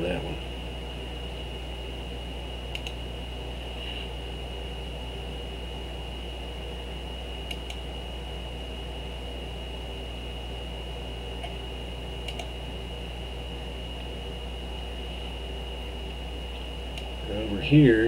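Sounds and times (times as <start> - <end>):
electrical hum and hiss: 0.0 - 18.0
thin high whine: 0.0 - 18.0
computer mouse clicks: 2.7 - 3.0, 7.4 - 7.8, 12.2 - 12.5.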